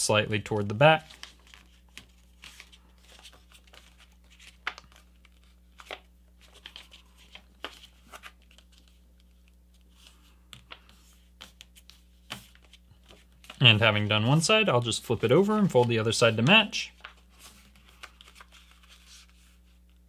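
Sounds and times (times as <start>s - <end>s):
paper rustling and crinkling: 0.5s - 20.0s
sharp paper crackles: 0.6s - 9.0s.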